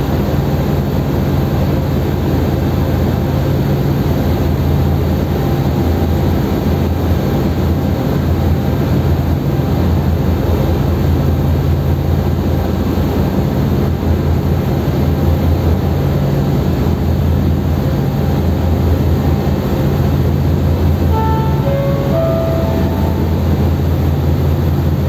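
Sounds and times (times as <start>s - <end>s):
ship engines droning: 19.8s - 25.0s.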